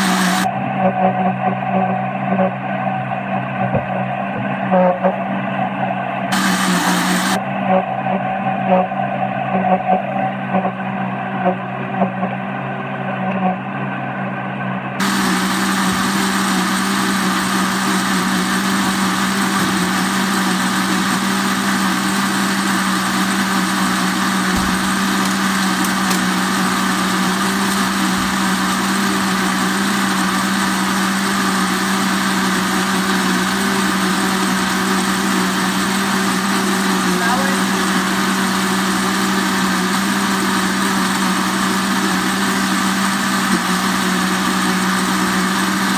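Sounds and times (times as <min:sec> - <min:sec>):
electric blender running: 0:00.0 - 0:02.5, 0:06.3 - 0:07.4, 0:15.0 - 0:45.9.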